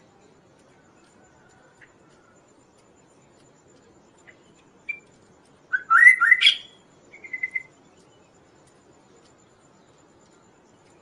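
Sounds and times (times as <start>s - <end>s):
bird singing whistled notes: 4.2s - 5.1s, 5.7s - 8.2s.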